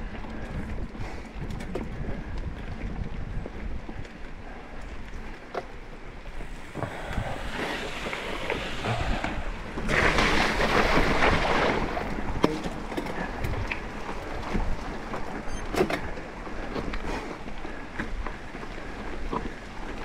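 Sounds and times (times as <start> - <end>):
wind on microphone: 0.0 - 15.8
bike tyre rumble on dirt: 0.0 - 20.0.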